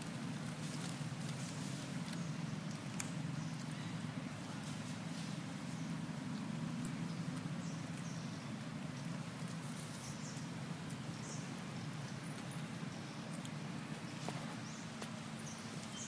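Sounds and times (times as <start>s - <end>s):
light ticks: 13.3s - 13.6s.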